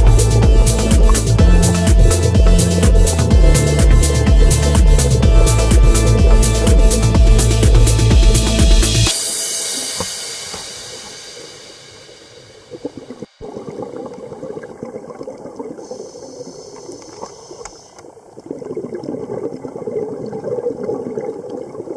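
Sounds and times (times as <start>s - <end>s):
underwater bubbling and gurgling: 0.0s - 5.0s, 12.2s - 21.9s
background music: 0.0s - 12.2s.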